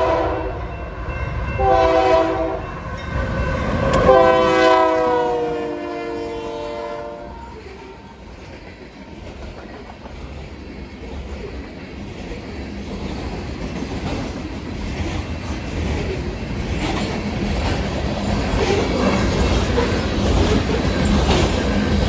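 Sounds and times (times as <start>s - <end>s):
steel wheels clacking over rail joints: 7.6s - 22.0s.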